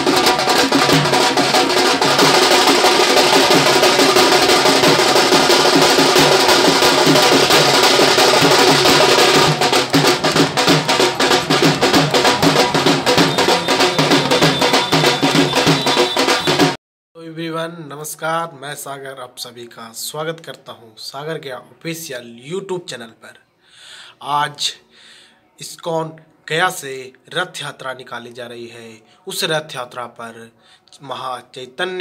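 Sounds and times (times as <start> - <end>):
fast dense drumming: 0.0 - 16.8.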